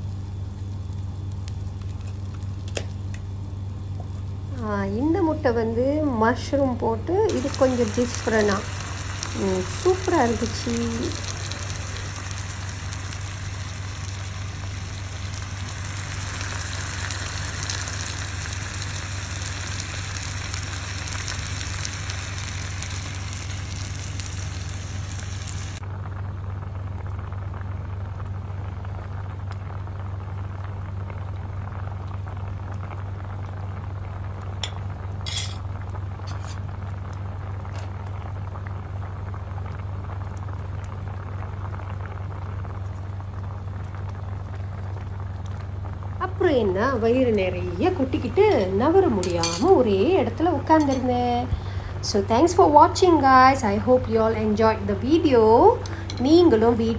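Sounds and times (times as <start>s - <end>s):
broth simmering: 0.0s - 56.9s
steady low hum: 0.0s - 56.9s
food sizzling on grill plate: 7.3s - 25.8s, 49.2s - 49.8s.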